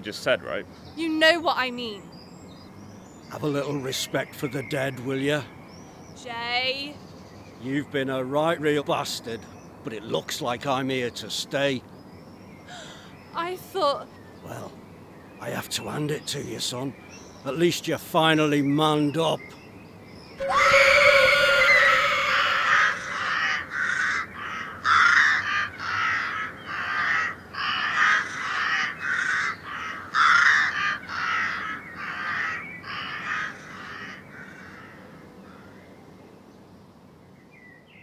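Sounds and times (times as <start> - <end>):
gull calling: 20.4 - 35.0.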